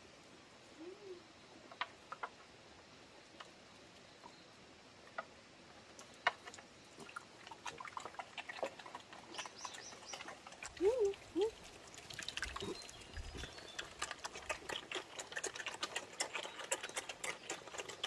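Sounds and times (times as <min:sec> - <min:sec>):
pigs eating mash: 0:05.8 - 0:18.0.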